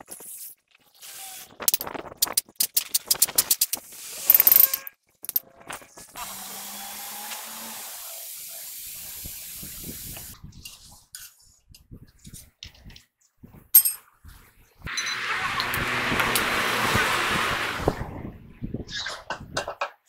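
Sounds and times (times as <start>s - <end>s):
metallic clicking and scraping: 1.6s - 5.8s
compressed air hissing: 7.8s - 10.4s.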